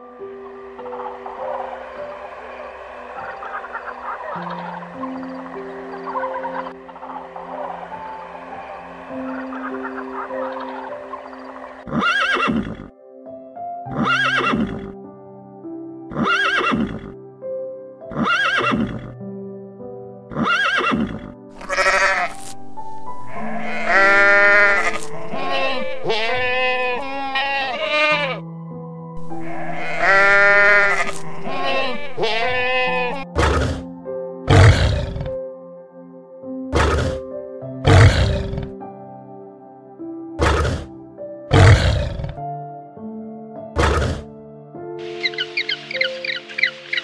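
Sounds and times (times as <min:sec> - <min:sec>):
background music: 0:00.0 - 0:47.0
animal calling: 0:00.8 - 0:12.9, 0:18.1 - 0:19.0, 0:20.3 - 0:22.5, 0:23.3 - 0:28.4, 0:29.2 - 0:33.9, 0:34.5 - 0:35.3, 0:36.8 - 0:37.2, 0:37.8 - 0:38.8, 0:40.4 - 0:40.9, 0:41.5 - 0:42.4, 0:43.8 - 0:44.3, 0:45.0 - 0:47.0.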